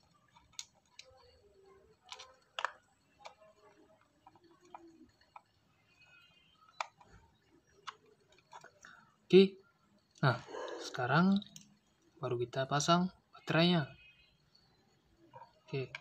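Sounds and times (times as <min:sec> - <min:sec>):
screwdriver clicking on plastic parts: 0:00.3 - 0:05.6.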